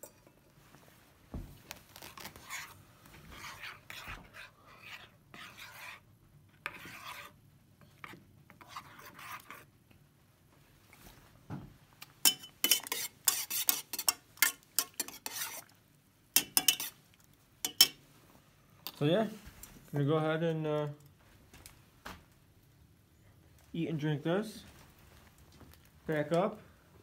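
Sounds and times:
spoon clinking against metal pot: 0:12.2 - 0:15.4, 0:16.4 - 0:16.9, 0:17.6 - 0:18.0.

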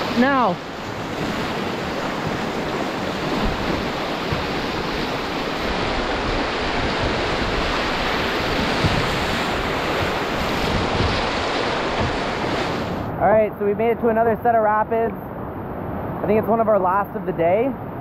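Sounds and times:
whitewater rapids rushing: 0:00.0 - 0:13.1.

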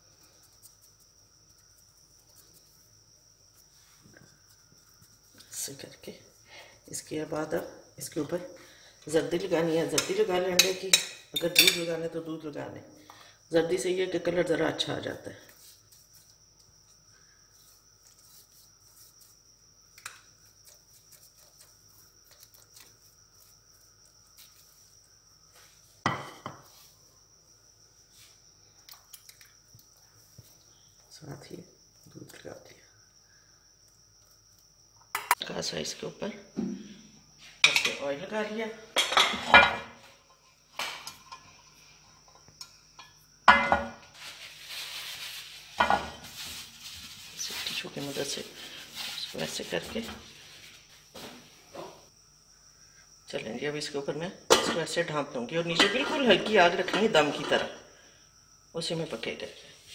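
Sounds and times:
pastry brush dabbing dough: 0:15.4 - 0:19.7, 0:20.3 - 0:25.9, 0:44.1 - 0:51.2.

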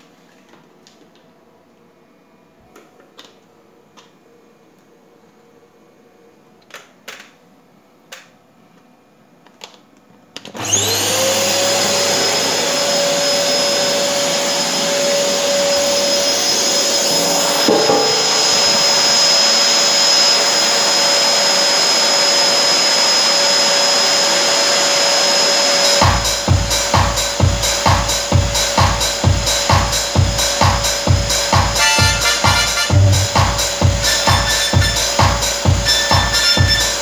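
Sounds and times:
vacuum cleaner motor whine: 0:10.4 - 0:29.6, 0:30.2 - 0:37.0.

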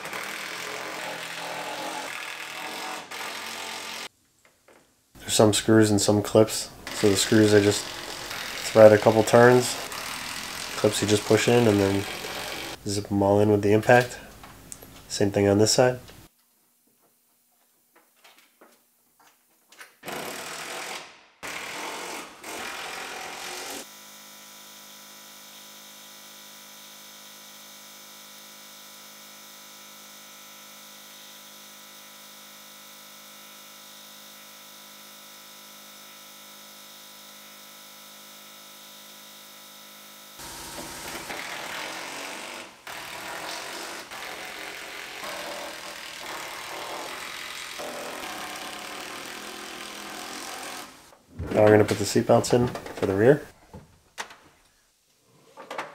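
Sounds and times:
impact driver running: 0:06.8 - 0:12.8.

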